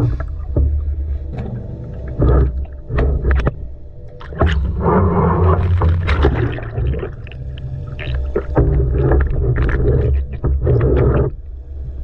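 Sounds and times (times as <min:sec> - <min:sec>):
low underwater rumble: 0:00.0 - 0:12.0
rushing bubbling water: 0:02.0 - 0:11.5.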